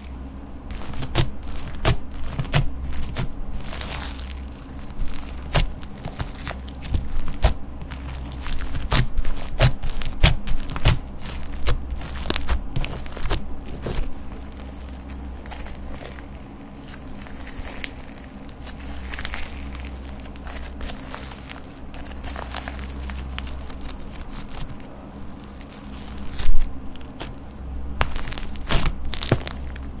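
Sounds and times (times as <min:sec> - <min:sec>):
steady low hum: 0:00.0 - 0:30.0
slime clicking and popping: 0:28.0 - 0:29.8.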